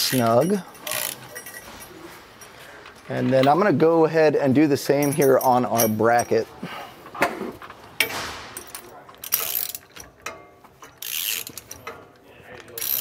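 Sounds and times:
ratchet clicking: 0.0s - 1.2s, 9.2s - 12.0s, 12.7s - 13.0s
light metal clinks: 0.1s - 3.6s.

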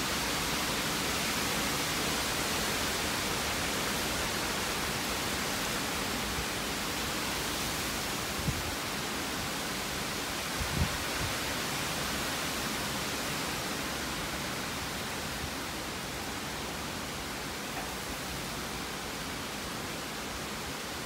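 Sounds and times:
wind rushing through trees: 0.0s - 21.0s
wind buffets on microphone: 8.3s - 8.8s, 10.5s - 11.4s.

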